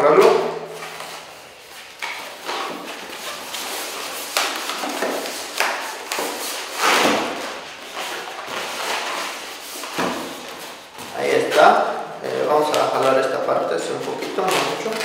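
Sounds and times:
balloon latex rubbing: 0:14.1 - 0:15.0.

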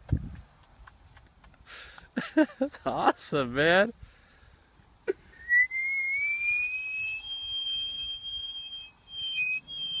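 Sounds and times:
person whistling: 0:05.3 - 0:10.0.

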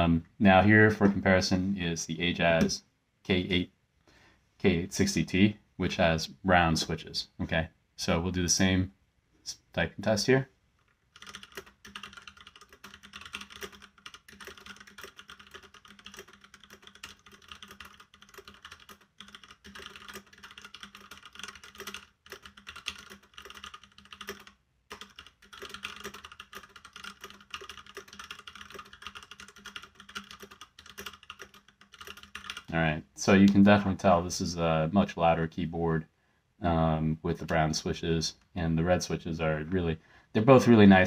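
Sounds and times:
fast mechanical keyboard typing: 0:11.1 - 0:32.7.

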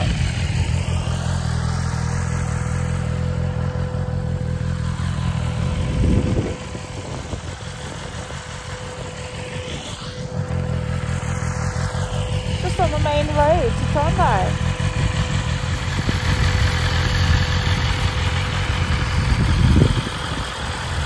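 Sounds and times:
motorcycle engine cruising: 0:00.0 - 0:21.0
wind rushing over microphone: 0:05.4 - 0:10.9, 0:15.8 - 0:21.0.

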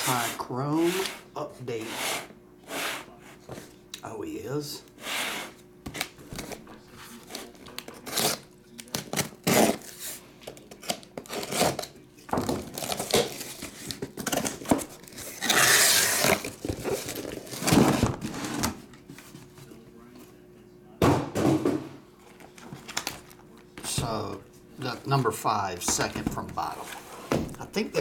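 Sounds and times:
packing tape ripping: 0:07.3 - 0:10.0, 0:10.7 - 0:11.9, 0:12.7 - 0:18.2
cardboard scraping and rustling: 0:11.2 - 0:18.8.

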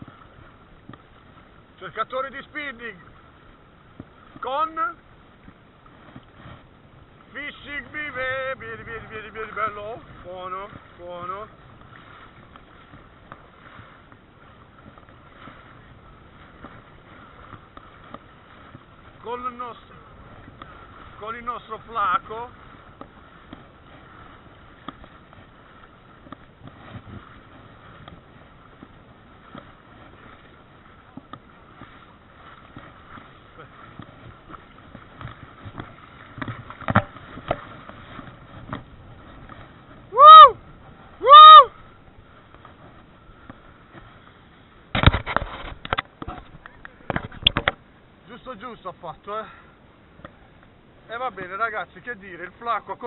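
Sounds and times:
water washing: 0:00.0 - 0:44.3
wind: 0:00.0 - 0:53.0.

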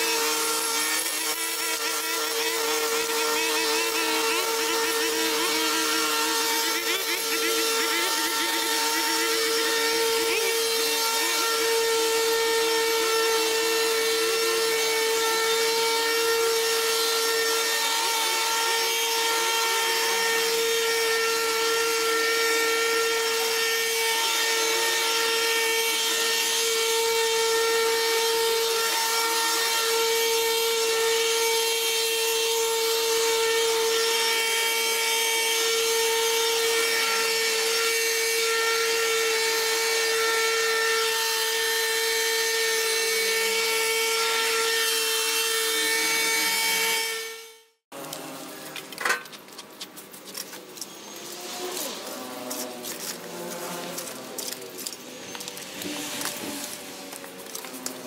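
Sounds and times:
brush cutter cutting grass: 0:00.0 - 0:32.4, 0:47.9 - 0:58.0.

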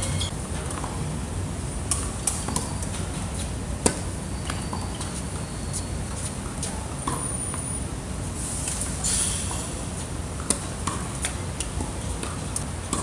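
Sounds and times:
racket striking ball: 0:03.8 - 0:04.0, 0:10.4 - 0:13.0.

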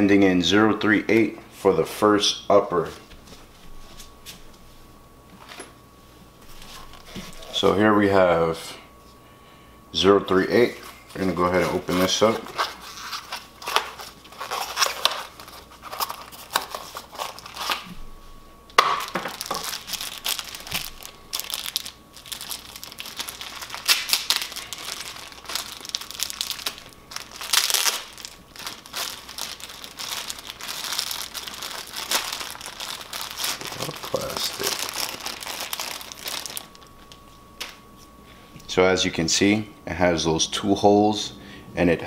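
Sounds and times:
plastic packaging crinkling: 0:06.6 - 0:07.7, 0:10.7 - 0:18.0, 0:18.8 - 0:37.8.

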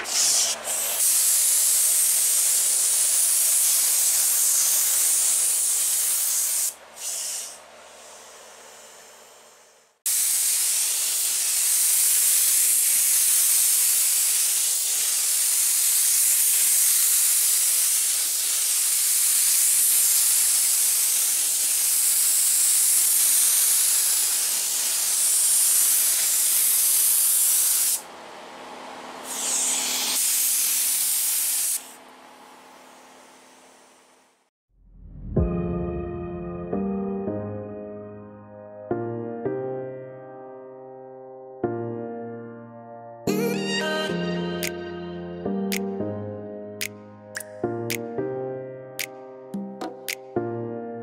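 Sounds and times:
spray gun hissing: 0:00.0 - 0:28.0, 0:29.2 - 0:32.0.

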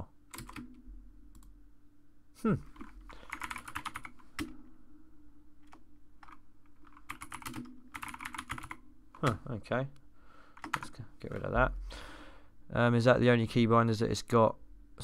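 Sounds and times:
typing on computer keyboard: 0:00.3 - 0:00.8, 0:02.8 - 0:04.5, 0:05.6 - 0:09.4, 0:10.6 - 0:10.9.

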